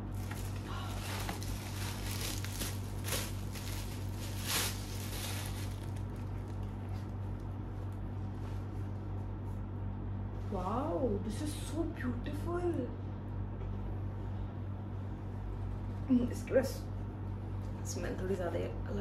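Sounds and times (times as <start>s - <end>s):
packaging rustling: 0.0s - 7.1s
steady low hum: 0.0s - 19.0s.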